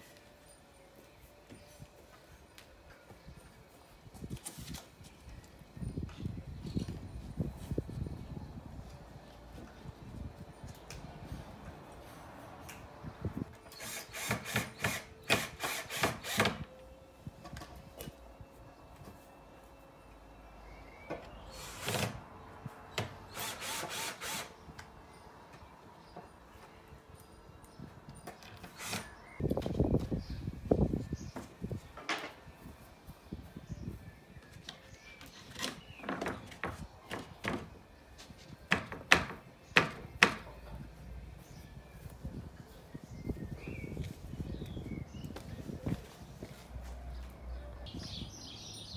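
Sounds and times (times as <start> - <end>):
cordless drill rasping into timber: 13.7 - 16.6, 23.3 - 24.6.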